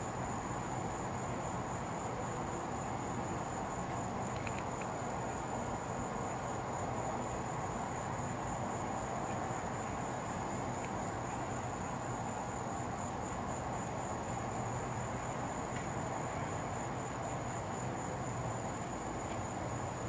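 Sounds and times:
crickets trilling: 0.0s - 20.0s
low hum and hiss: 0.0s - 20.0s.

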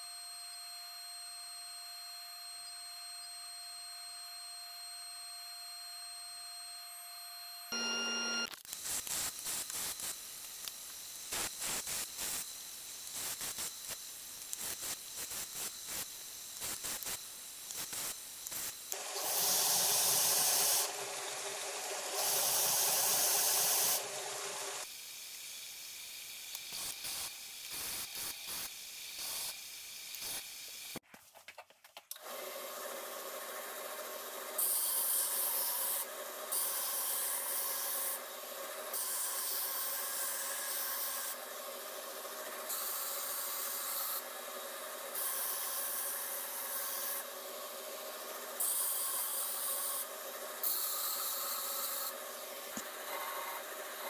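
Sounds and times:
belt grinder running: 17.6s - 30.9s, 32.2s - 54.0s.

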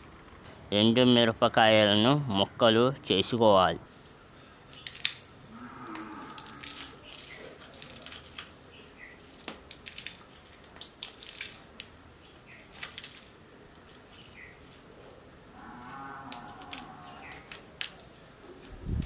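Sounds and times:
dried chillies crackling and snapping: 4.0s - 19.0s.

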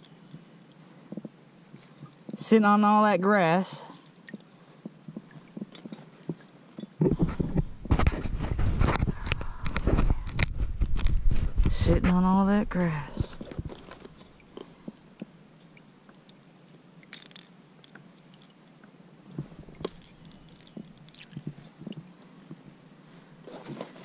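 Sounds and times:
fishing gear clicks and taps: 4.0s - 7.6s, 16.7s - 22.7s.

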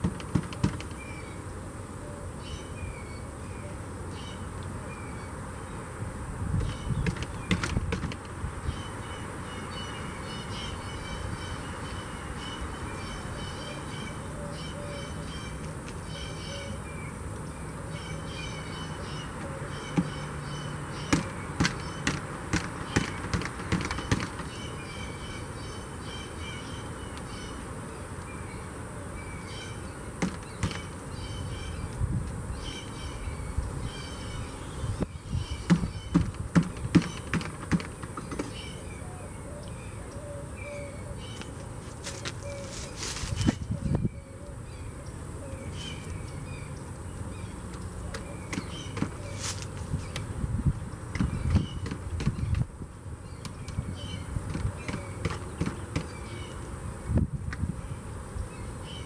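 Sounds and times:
songbirds chirping: 0.0s - 59.0s.

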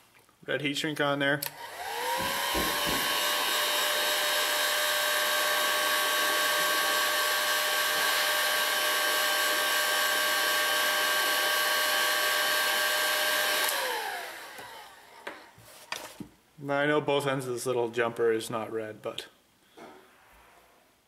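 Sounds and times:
heat gun blowing and whining: 1.4s - 16.1s.

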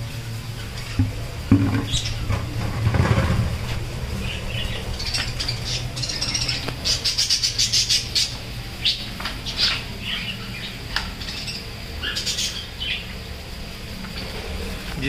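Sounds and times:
budgerigars chirping and squawking: 1.8s - 2.3s, 4.2s - 13.2s.

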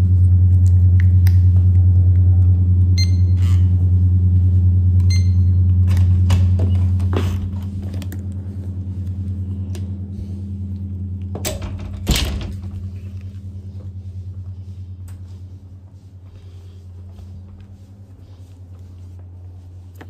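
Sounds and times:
appliance electrical hum: 0.0s - 20.0s.

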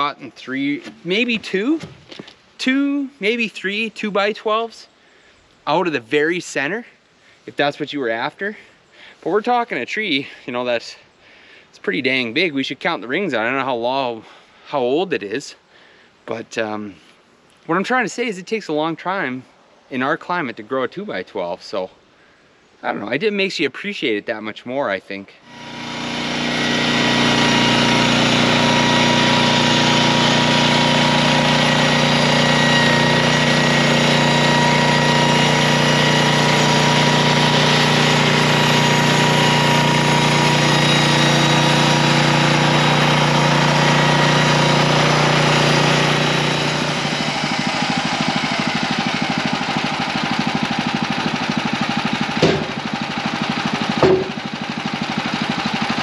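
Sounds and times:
sawmill engine running under load: 25.5s - 56.0s
boards knocking: 52.4s - 52.8s, 54.0s - 54.4s.

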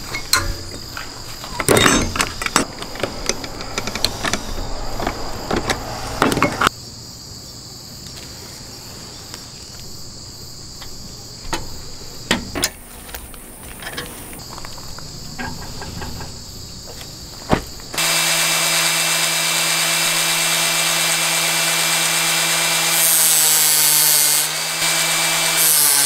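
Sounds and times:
metallic clicks and knocks: 0.0s - 6.7s
insects chirping: 0.0s - 18.0s, 25.1s - 26.0s.

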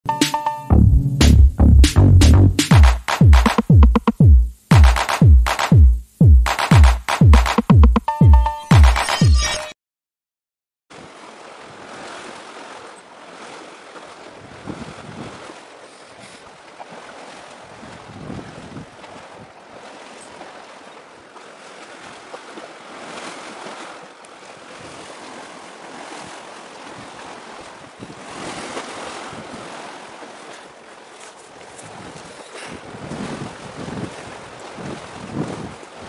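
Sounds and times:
wind buffeting microphone: 17.8s - 19.0s, 32.8s - 35.8s.

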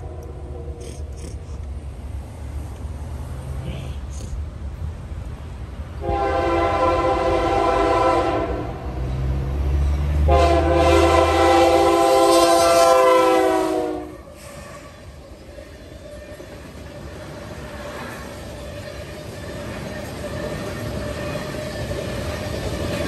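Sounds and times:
train cars rolling by: 4.6s - 23.0s
locomotive air horn blasts: 6.0s - 8.8s, 10.2s - 15.1s.

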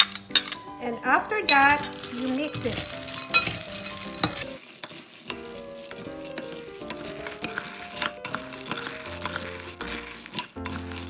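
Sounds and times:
spoon clinking against glass: 0.0s - 0.8s, 1.5s - 11.0s
peanuts rattling in bowl: 0.0s - 11.0s.

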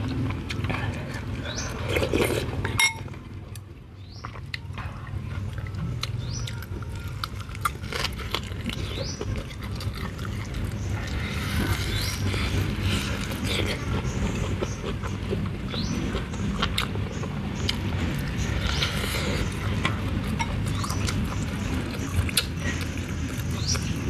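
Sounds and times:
chewing with wet clicks: 0.0s - 24.0s
metal spoon clinking on bowl: 2.8s - 3.1s.

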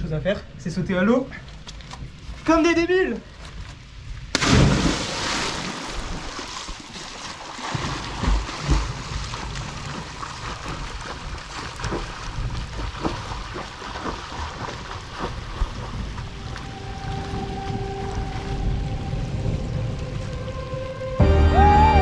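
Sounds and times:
splashing and churning water: 4.2s - 21.2s
big splash into water: 4.3s - 17.4s.

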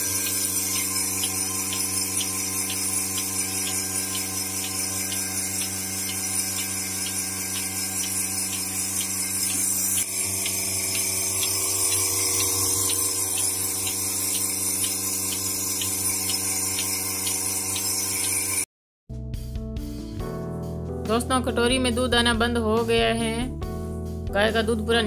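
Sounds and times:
pulsator clicking: 0.0s - 18.6s
vacuum pump humming: 0.0s - 18.6s.

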